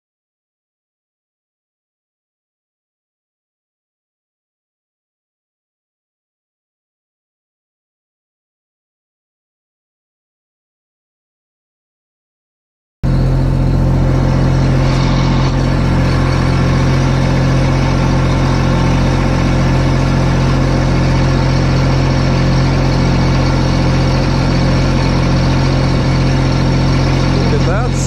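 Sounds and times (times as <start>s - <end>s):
riding mower engine running: 13.0s - 28.0s.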